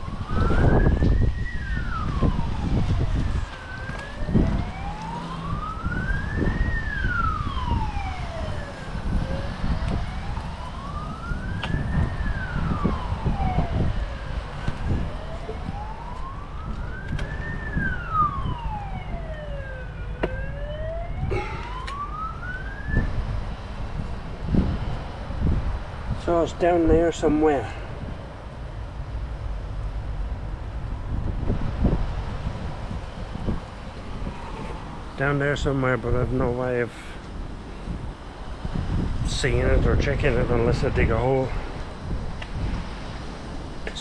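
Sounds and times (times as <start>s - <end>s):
siren wailing: 0.0s - 23.3s
low rumbling noise: 0.0s - 43.9s.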